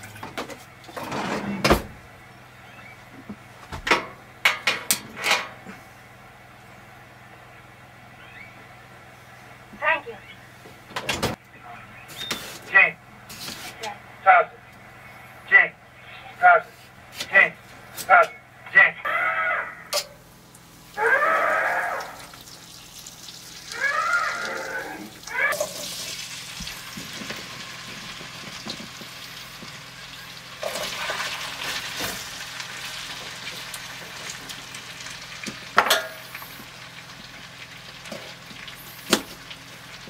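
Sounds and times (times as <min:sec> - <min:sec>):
short pitched calls: 0:23.6 - 0:25.8
potatoes sizzling in a skillet: 0:25.6 - 0:40.0.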